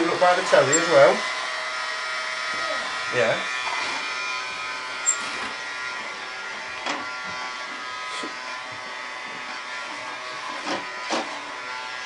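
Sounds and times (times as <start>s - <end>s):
toy vacuum cleaner whining: 0.0s - 12.0s.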